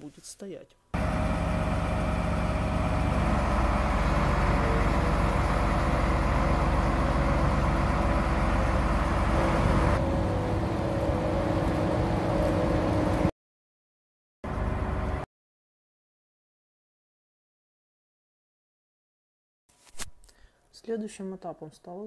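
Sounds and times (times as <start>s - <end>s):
diesel engine running under load: 1.0s - 13.3s, 14.5s - 15.2s.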